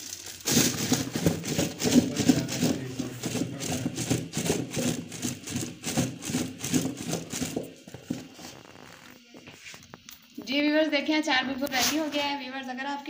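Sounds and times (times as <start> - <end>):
berries rattling in plastic jar: 0.0 - 9.1.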